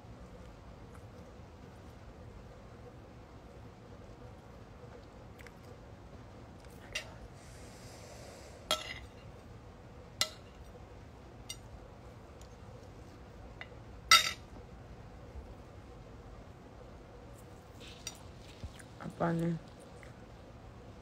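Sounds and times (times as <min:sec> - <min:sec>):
cutlery clinking on plate: 0:14.1 - 0:14.4
soft rustle: 0:17.3 - 0:20.0.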